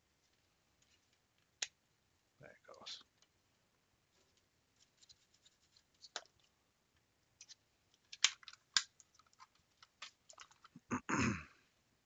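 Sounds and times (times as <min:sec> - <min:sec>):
small plastic clicks: 0:07.4 - 0:10.8.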